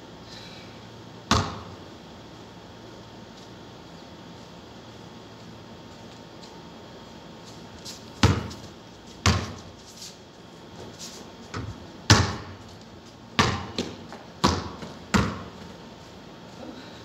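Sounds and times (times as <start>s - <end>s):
basketball bouncing on concrete: 1.3s - 1.8s, 8.1s - 9.8s, 11.5s - 12.8s, 13.4s - 15.8s
basketball hitting backboard and rim: 1.3s - 1.8s, 8.2s - 9.7s, 11.5s - 12.6s, 13.4s - 15.6s.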